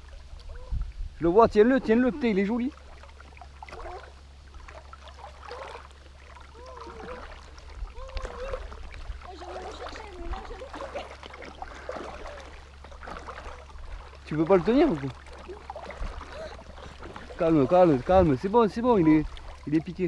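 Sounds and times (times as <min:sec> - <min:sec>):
steady low rumble: 0:00.0 - 0:20.0
water splashing: 0:00.0 - 0:20.0
distant voice calling: 0:05.3 - 0:13.7.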